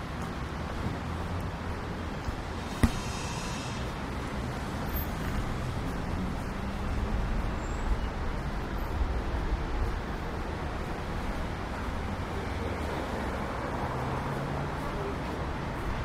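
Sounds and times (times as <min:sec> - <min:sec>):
traffic rumble: 0:00.0 - 0:16.0
brief hiss: 0:02.6 - 0:03.9
sharp knock: 0:02.7 - 0:03.8.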